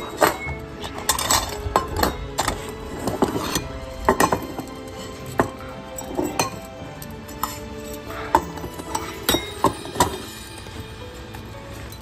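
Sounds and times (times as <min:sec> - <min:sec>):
bowls shifting on wooden floor: 0:00.0 - 0:06.7
background music: 0:00.0 - 0:12.0
kibble clinking in metal bowls: 0:00.0 - 0:12.0.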